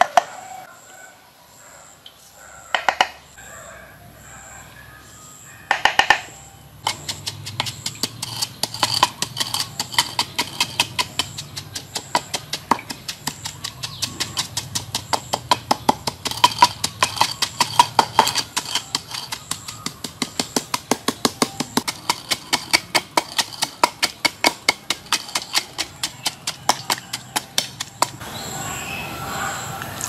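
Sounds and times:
wooden pestle pounding mortar: 5.7s - 28.2s.

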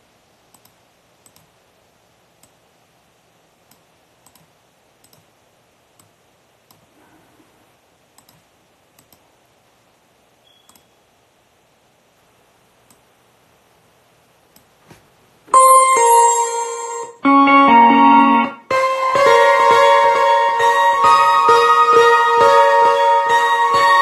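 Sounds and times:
brief high tone: 15.5s - 24.0s.

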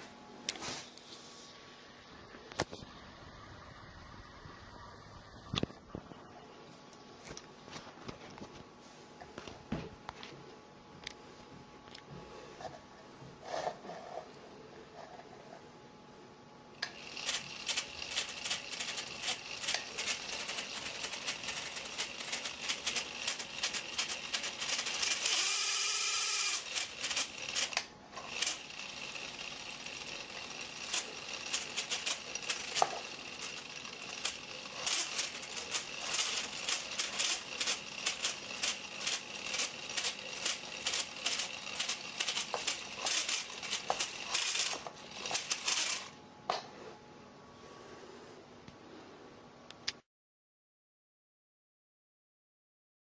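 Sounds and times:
toy motor engine clattering: 16.8s - 46.2s.

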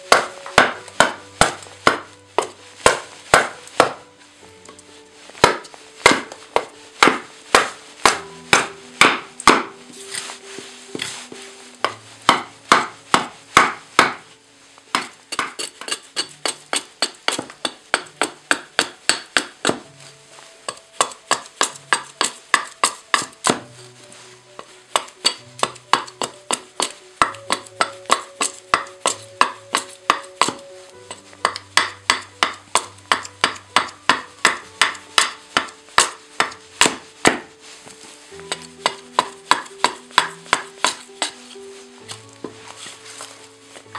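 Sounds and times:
hatchet chopping wood: 0.0s - 4.0s, 5.4s - 9.7s, 11.8s - 14.2s, 14.9s - 19.8s, 20.7s - 23.7s, 24.9s - 37.5s, 38.5s - 42.2s
soft background music: 0.0s - 43.9s.

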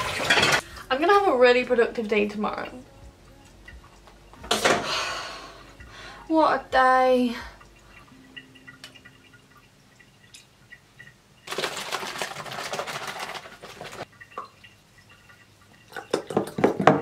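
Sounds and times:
milk sloshing in carton: 11.5s - 14.1s.

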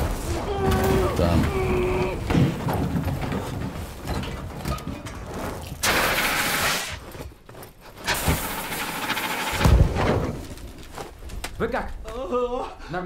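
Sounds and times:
fire crackling: 0.0s - 12.3s
loud rushing hiss: 8.1s - 9.8s.

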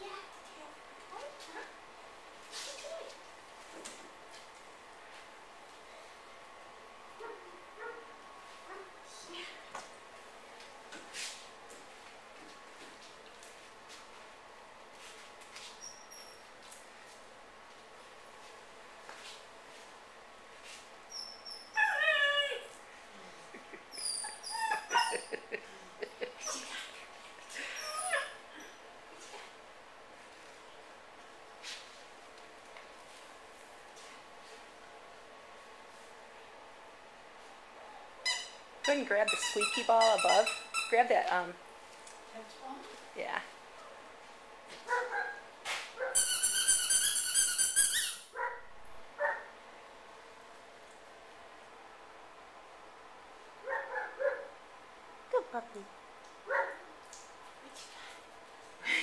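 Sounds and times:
puppy yipping: 23.9s - 25.4s, 44.9s - 45.4s, 46.0s - 48.6s
squeaky dog toy squeaks: 38.2s - 41.0s, 46.2s - 48.3s.

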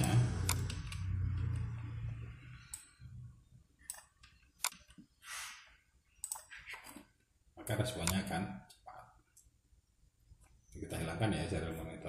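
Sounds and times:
keyboard and mouse clicks: 0.0s - 1.8s, 2.6s - 3.0s, 3.8s - 5.1s, 6.2s - 9.5s.

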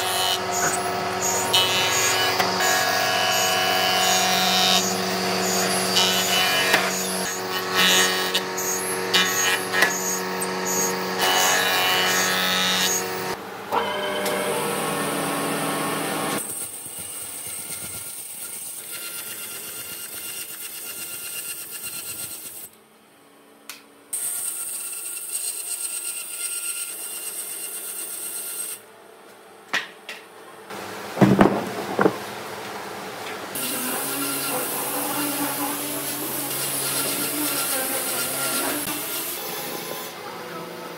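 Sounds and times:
bandsaw cutting wood: 0.0s - 16.6s, 33.6s - 40.2s
sharp loud knocks: 31.2s - 32.4s.

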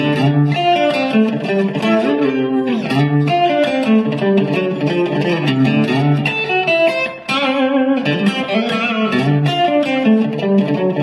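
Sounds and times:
plucked guitar tune: 0.0s - 11.0s.

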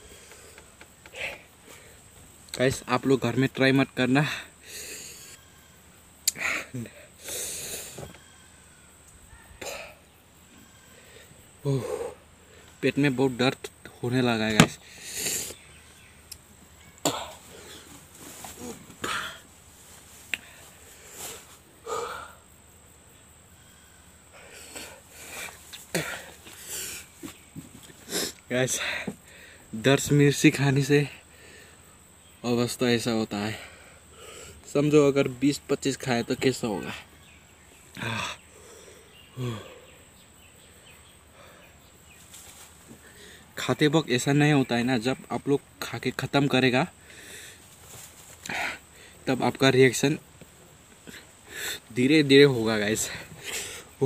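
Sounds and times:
insects chirping: 0.0s - 54.0s
person sniffling and breathing hard: 6.3s - 8.0s, 20.3s - 22.6s, 24.3s - 29.7s, 51.0s - 51.9s, 53.1s - 54.0s
person groaning: 39.4s - 39.9s.

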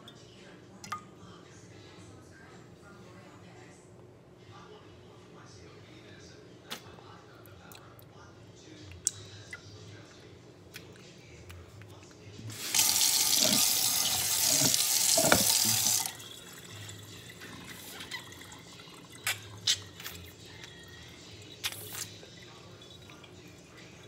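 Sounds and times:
kitchen tap running: 12.5s - 19.9s, 21.4s - 23.4s.

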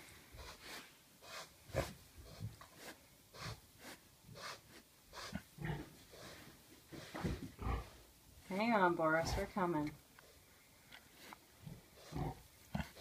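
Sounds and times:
pig chewing and snuffling: 0.3s - 7.8s, 10.2s - 13.0s.

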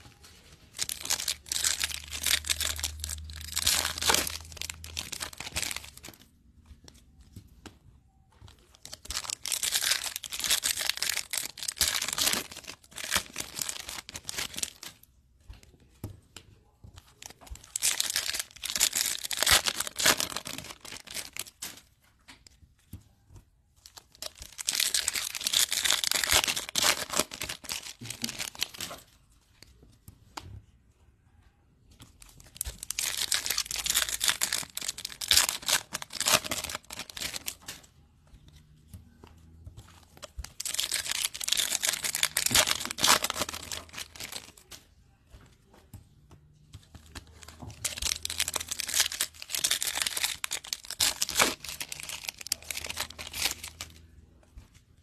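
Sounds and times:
foil wrappers tearing and crinkling: 0.0s - 6.2s, 8.8s - 15.0s, 17.6s - 21.8s, 23.9s - 28.9s, 32.5s - 37.8s, 40.5s - 44.8s, 47.3s - 54.0s.

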